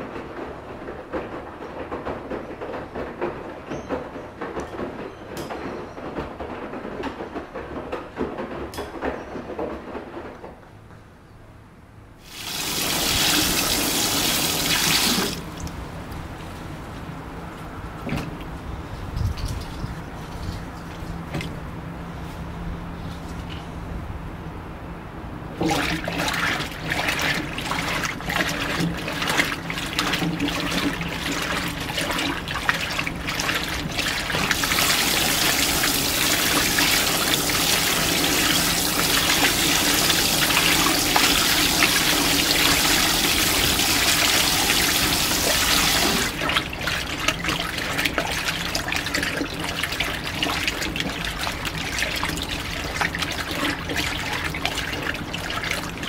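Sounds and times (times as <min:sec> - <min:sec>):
washing machine filling with water: 0:12.2 - 0:15.9, 0:25.5 - 0:56.0.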